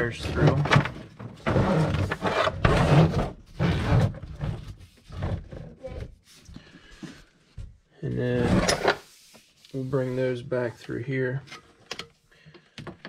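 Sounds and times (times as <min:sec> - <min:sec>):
rustling scraping noise: 0:08.1 - 0:11.7.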